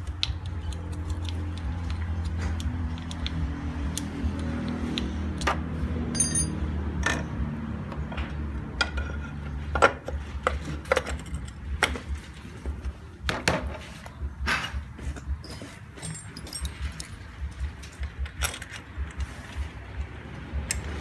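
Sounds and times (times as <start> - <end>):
metal clicks and clinks: 6.1 - 7.2, 15.4 - 17.2.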